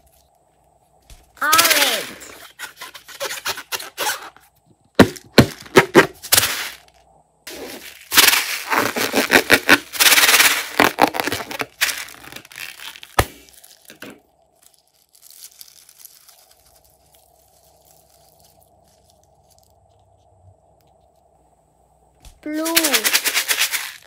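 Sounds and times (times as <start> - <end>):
faint steady hum: 0.0 - 24.0
balloon crackling and tearing: 1.4 - 4.4, 5.0 - 19.7
balloon snapping: 8.1 - 14.2.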